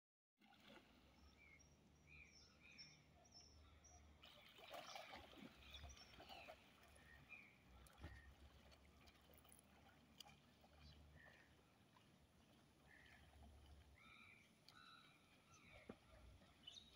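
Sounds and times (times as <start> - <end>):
bird chirping: 1.4 - 4.2, 14.0 - 16.9
swimmer splashing: 4.2 - 16.9.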